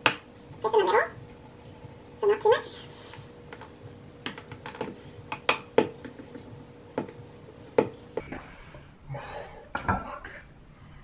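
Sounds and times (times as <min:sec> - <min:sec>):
rolling pin knocking on countertop: 0:04.2 - 0:08.0.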